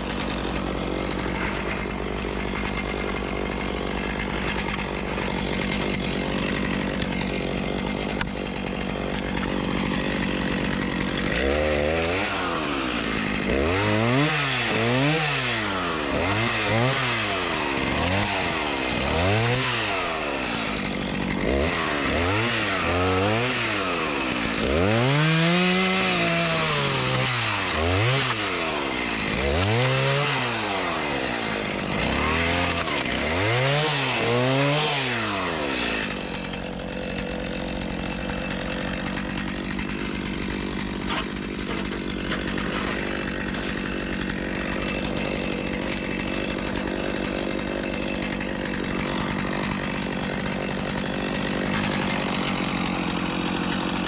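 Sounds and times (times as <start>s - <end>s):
chainsaw revving through wood: 0.0s - 54.0s.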